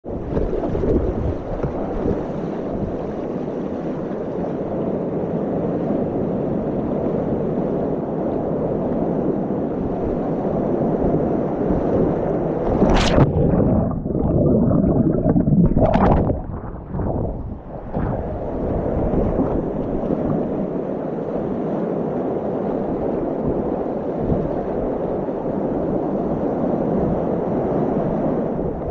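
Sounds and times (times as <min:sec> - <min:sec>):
wind on microphone: 0:00.0 - 0:28.9
paddle splashes: 0:12.5 - 0:20.7
sharp splash: 0:12.6 - 0:17.3.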